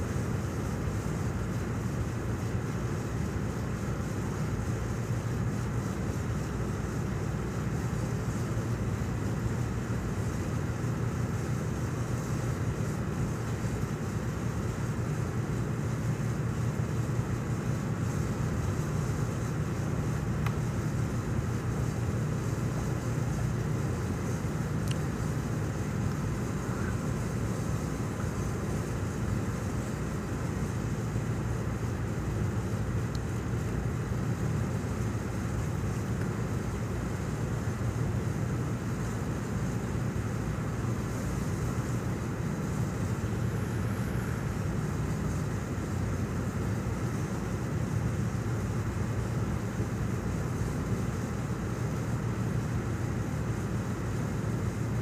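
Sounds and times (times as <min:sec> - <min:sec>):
ship engine drone: 0:00.0 - 0:55.0
wind and water hiss: 0:00.0 - 0:55.0.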